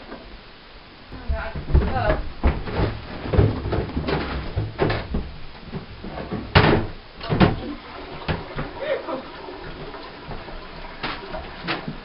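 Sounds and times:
wooden cabinet doors knocking: 1.2 - 7.6.

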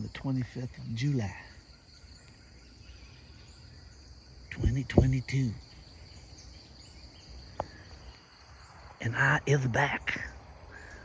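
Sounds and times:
man speaking: 0.0 - 1.6, 4.5 - 5.6, 9.0 - 10.4
insects chirping in forest: 0.0 - 11.0.

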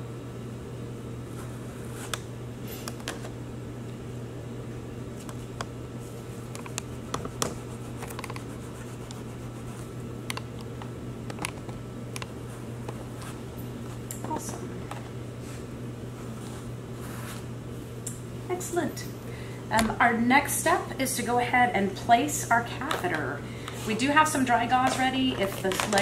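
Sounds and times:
low room hum: 0.0 - 26.0
wet gauze rubbing on foam: 7.6 - 9.9.

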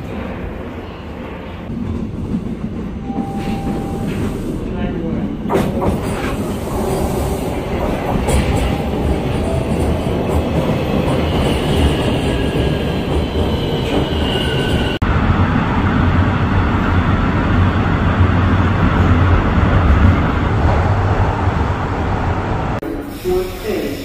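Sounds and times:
train rumble: 0.0 - 24.0.

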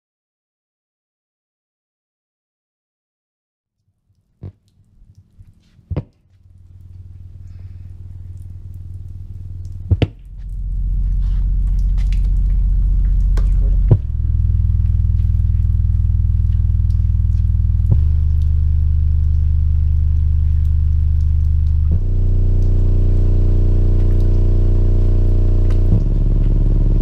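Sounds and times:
sharp pops: 4.4 - 6.3, 9.6 - 10.6
loudspeaker low-pitched hum: 6.5 - 27.0.

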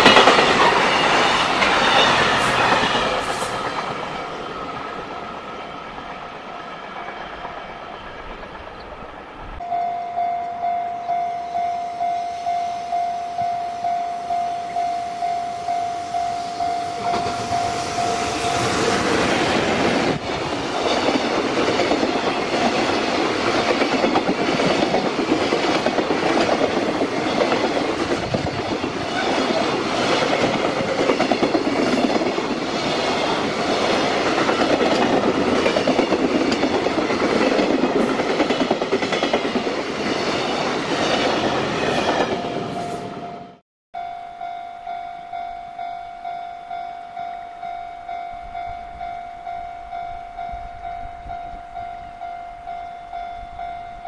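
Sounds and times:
wheels clacking over rail joints: 0.0 - 9.4, 17.0 - 42.8
freight train passing: 0.0 - 54.0
level crossing warning bell: 9.6 - 19.3, 42.1 - 54.0.

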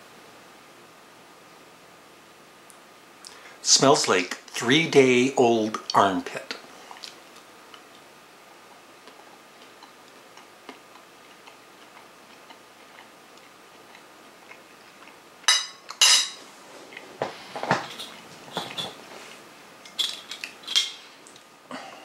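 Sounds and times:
plate and cutlery clattering: 15.5 - 16.4.

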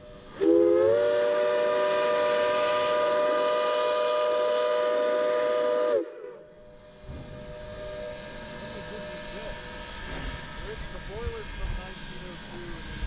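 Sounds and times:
steam locomotive chime whistle: 0.0 - 6.8.

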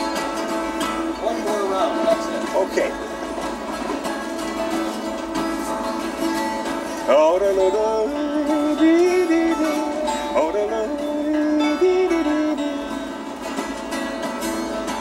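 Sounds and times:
acoustic guitar strumming: 0.0 - 15.0
man singing: 1.2 - 2.8, 7.0 - 13.3.

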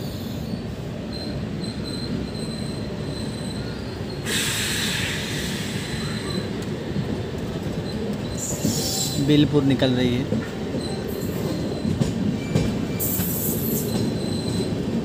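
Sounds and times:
train wheels rumbling on track: 0.0 - 15.0
loud hiss: 4.2 - 6.2.

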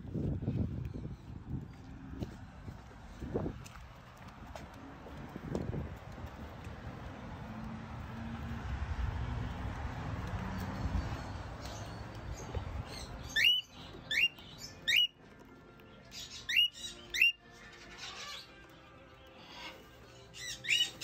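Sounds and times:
cockatiel whistled calls: 13.3 - 15.1, 16.2 - 17.4, 20.4 - 21.0.

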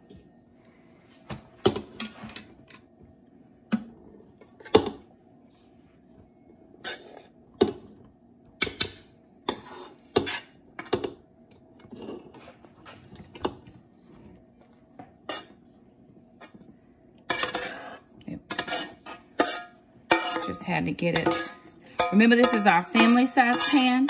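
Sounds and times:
spoon scraping pot: 9.5 - 10.9, 11.8 - 13.5, 17.3 - 24.0
metal spoon clinking on pot: 18.5 - 24.0.

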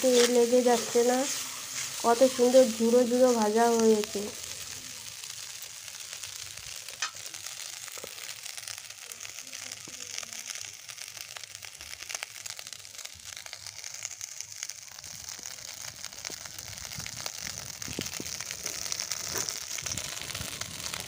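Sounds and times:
metal spatula scraping: 0.0 - 2.6
rice sizzling in oil: 0.0 - 21.0.

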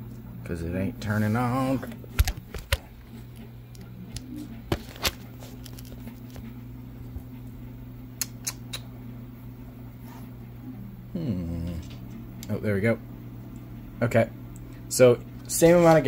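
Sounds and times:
steady low hum: 0.0 - 16.0
clicks and knocks handling wires: 2.1 - 2.9.

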